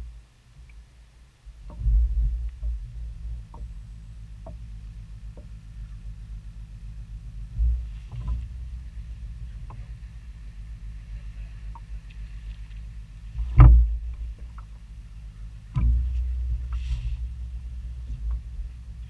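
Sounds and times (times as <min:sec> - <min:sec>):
boat engine low rumble: 0:00.0 - 0:19.0
loud low thump: 0:01.7 - 0:03.8, 0:13.4 - 0:14.6, 0:15.7 - 0:17.3.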